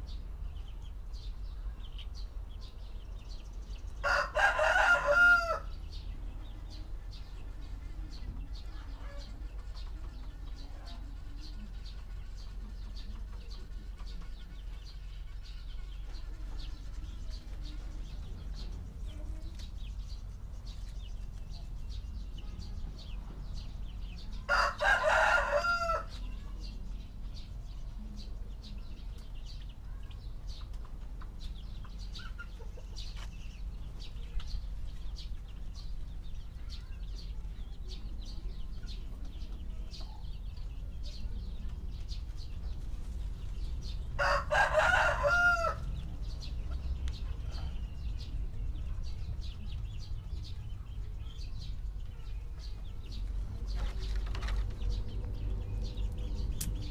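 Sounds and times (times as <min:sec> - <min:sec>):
rooster crowing: 0:04.0 - 0:05.7, 0:24.5 - 0:26.2, 0:44.2 - 0:45.9
low background rumble: 0:26.0 - 0:56.9.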